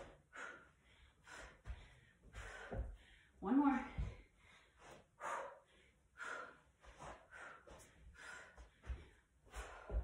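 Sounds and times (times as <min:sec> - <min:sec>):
woman panting hard: 0:00.0 - 0:10.0
bare feet landing thuds: 0:08.7 - 0:10.0.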